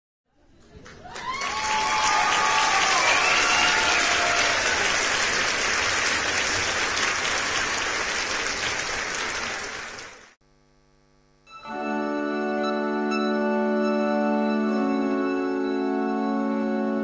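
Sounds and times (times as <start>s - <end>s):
audience applauding: 0.6s - 10.4s.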